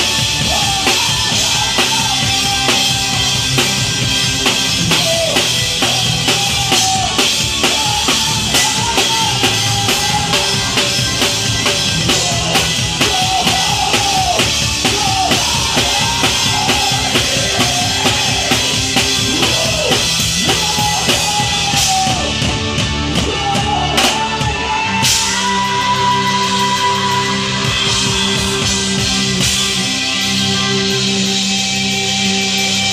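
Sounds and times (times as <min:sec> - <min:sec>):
pitch-bending lead melody: 0:00.0 - 0:23.8
drum kit playing: 0:00.0 - 0:32.9
live rock band playing: 0:00.0 - 0:32.9.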